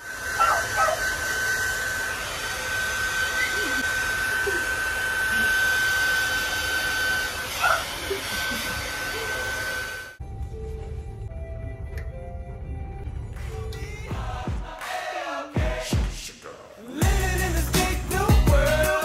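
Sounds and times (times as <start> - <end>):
hair dryer running: 0.0 - 10.2.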